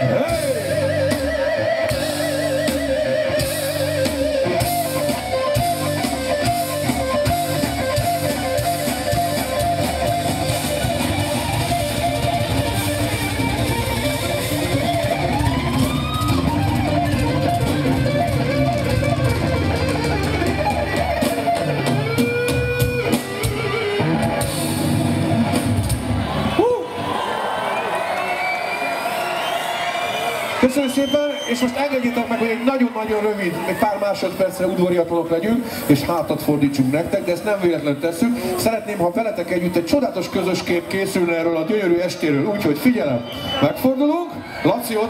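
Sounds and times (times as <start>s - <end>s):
distorted electric guitar: 0.0s - 26.6s
heavy metal band playing: 0.0s - 27.1s.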